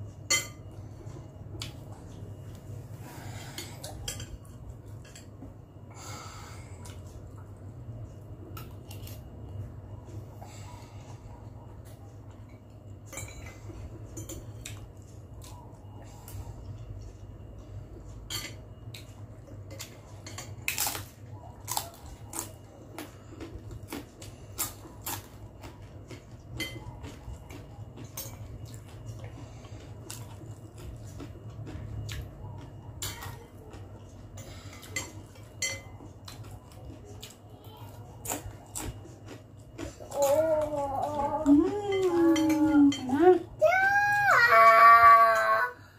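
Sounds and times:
low steady hum: 0.0s - 45.9s
cutlery clinking on glass bowl: 34.4s - 36.4s.

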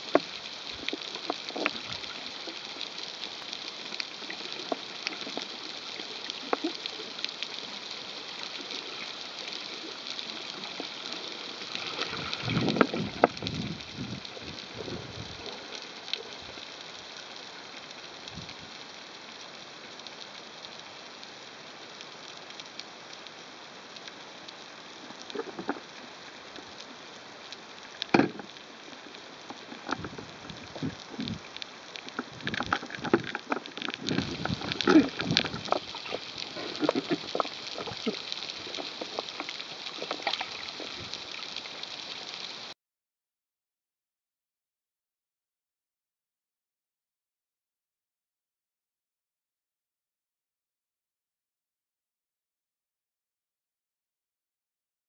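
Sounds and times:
underwater hiss: 0.0s - 42.7s
crackling clicks: 0.0s - 42.8s.

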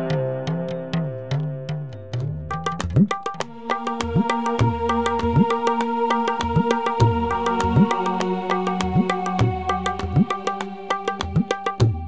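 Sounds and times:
hand drum rhythm: 0.0s - 12.0s.

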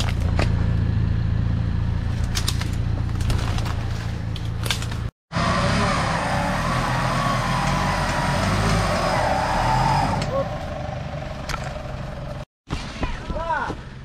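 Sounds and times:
vehicle engine running: 0.0s - 9.0s, 10.2s - 12.5s.

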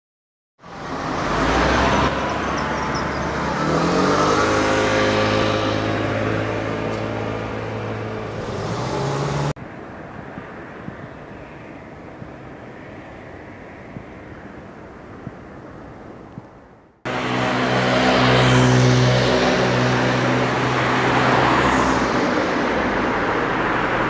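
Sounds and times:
vehicle engine accelerating: 0.8s - 9.6s, 17.1s - 22.3s.

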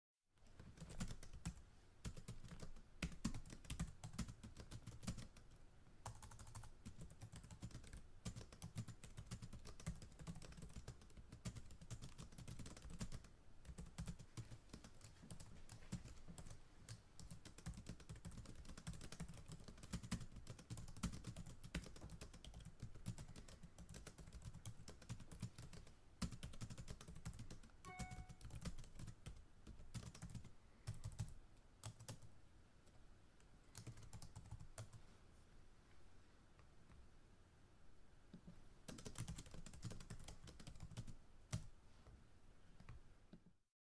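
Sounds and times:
fast typing on keyboard: 0.5s - 32.3s, 33.7s - 35.0s, 38.9s - 41.7s
brief faint tone: 27.9s - 28.5s.

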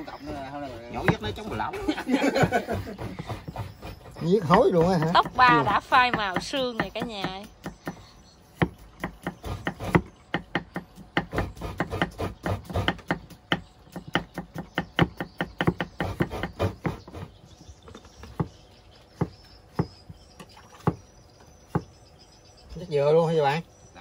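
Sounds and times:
knife chopping food: 8.6s - 17.3s.

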